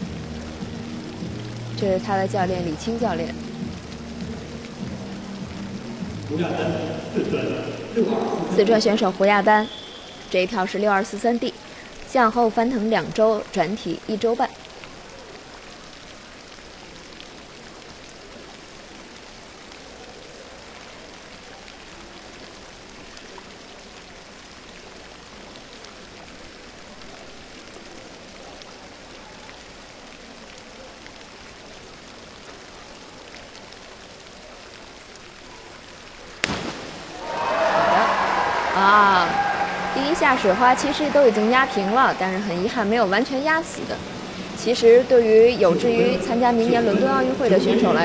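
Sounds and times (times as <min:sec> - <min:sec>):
indoor pool hiss: 0:00.0 - 0:48.0
crowd noise: 0:36.1 - 0:48.0
diver smacking into water: 0:36.4 - 0:37.2.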